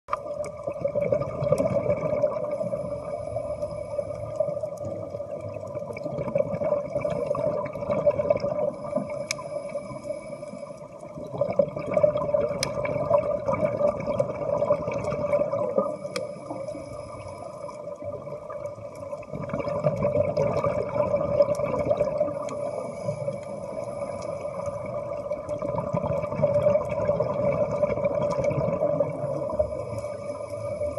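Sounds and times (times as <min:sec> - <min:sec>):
steady underwater hum: 0:00.1 - 0:30.9
diver exhaling bubbles: 0:00.6 - 0:02.7, 0:04.9 - 0:09.2, 0:11.2 - 0:16.7, 0:19.2 - 0:22.5, 0:24.8 - 0:29.7.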